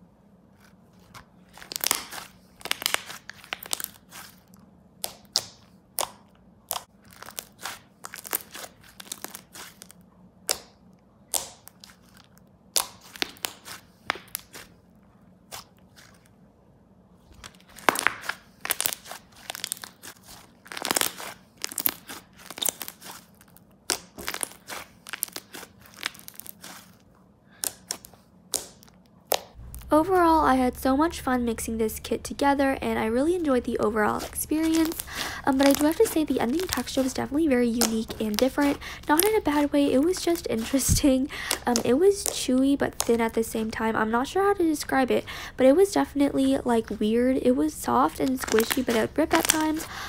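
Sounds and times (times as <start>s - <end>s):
slime squeezed with sticky pops: 17.4s - 27.0s, 34.1s - 43.3s, 48.2s - 49.9s.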